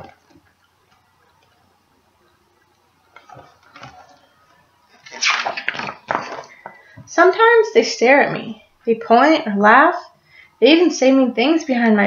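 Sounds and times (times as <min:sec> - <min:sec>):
book pages rustling: 0:03.1 - 0:06.8.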